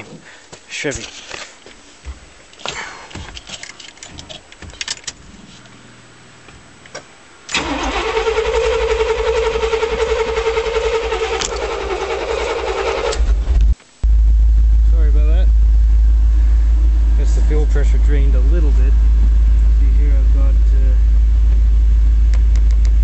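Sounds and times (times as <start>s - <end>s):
light clicks and rattles: 0.9s - 5.8s
truck engine cranking on starter: 2.6s - 13.7s.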